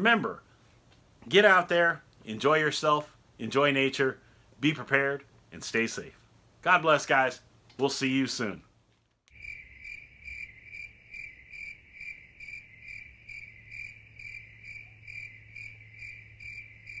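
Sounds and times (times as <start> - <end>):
cricket chirping: 9.3 - 17.0.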